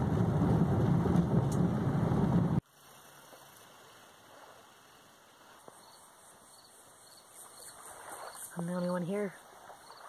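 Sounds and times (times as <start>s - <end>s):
car cabin rumble on dirt road: 0.0s - 2.6s.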